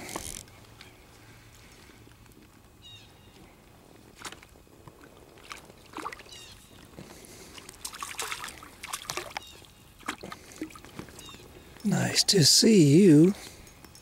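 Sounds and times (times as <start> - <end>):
fish splashing in water: 5.0 - 11.4.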